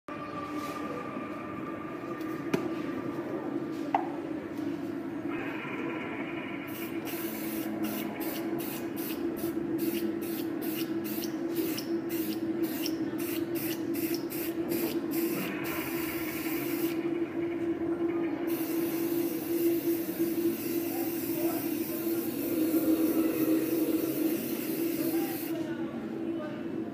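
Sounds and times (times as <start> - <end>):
aerosol spray hissing: 18.5 - 25.6.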